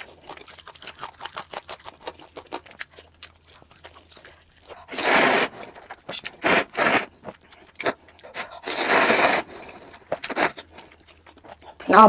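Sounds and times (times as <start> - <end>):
chewing clicks: 0.0 - 4.9
noodles slurped: 0.0 - 11.8.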